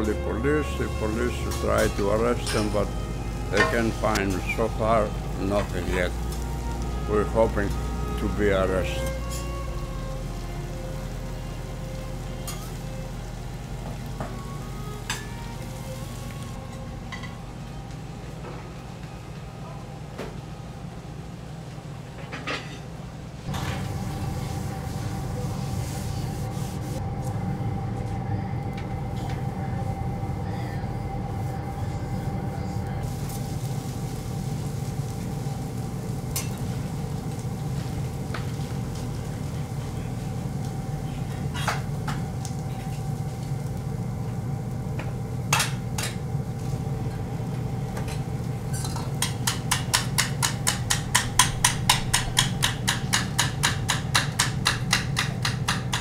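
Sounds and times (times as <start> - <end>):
kitchen equipment hum: 0.0 - 56.0
dishes and utensils clinking: 1.4 - 4.6, 48.0 - 56.0.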